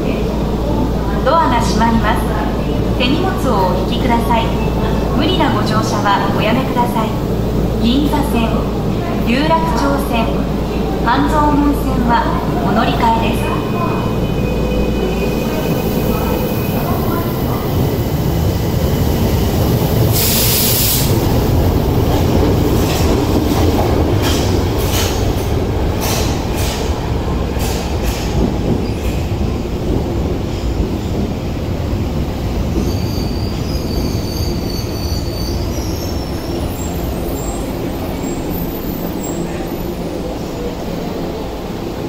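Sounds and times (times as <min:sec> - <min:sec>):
subway train rumble: 0:00.0 - 0:42.0
train wheels clicking on track: 0:16.8 - 0:34.7.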